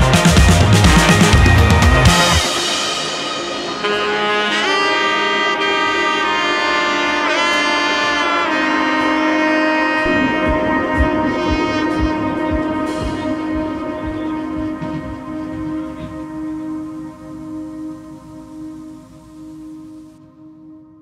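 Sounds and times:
wind instrument melody over chord: 0.0 - 20.6
low drum beat: 10.0 - 18.6.

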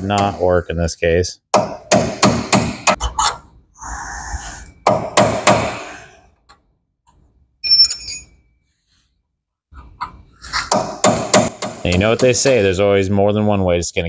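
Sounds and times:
hammer striking chisel on metal: 1.5 - 3.0, 4.8 - 5.9, 10.7 - 12.5.

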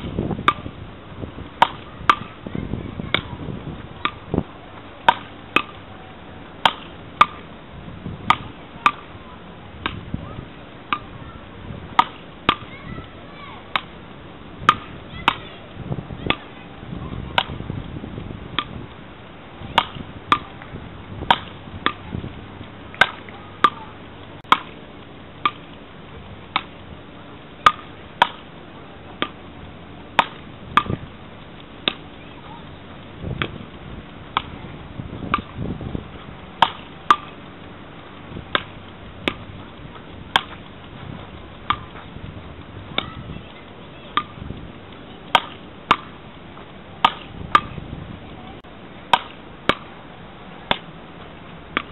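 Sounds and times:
wooden paddles knocking ball: 9.8 - 10.0, 18.6 - 18.8, 26.5 - 26.7, 30.2 - 31.0, 31.8 - 32.0, 35.2 - 35.6, 38.5 - 42.2.

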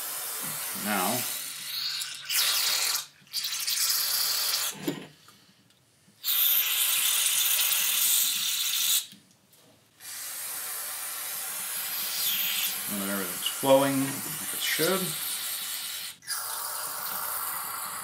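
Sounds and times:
aerosol spray hissing: 10.0 - 18.0.

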